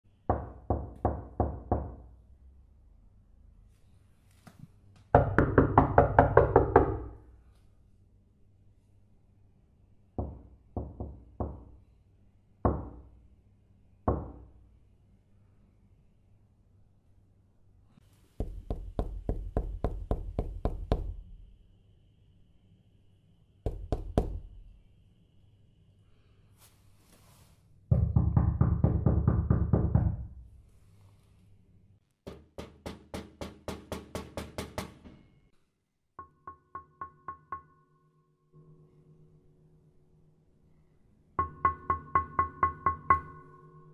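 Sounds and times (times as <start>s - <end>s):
knocking on a door: 0.3s - 2.1s, 5.1s - 7.2s, 10.2s - 11.8s, 12.7s - 13.1s, 14.1s - 14.5s, 18.4s - 21.2s, 23.7s - 24.5s, 27.9s - 30.4s, 32.2s - 35.3s.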